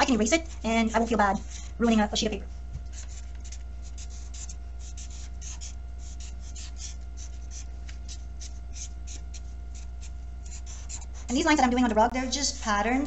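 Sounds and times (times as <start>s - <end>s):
low hum: 0.0s - 13.0s
marker scratching on paper: 2.9s - 11.4s.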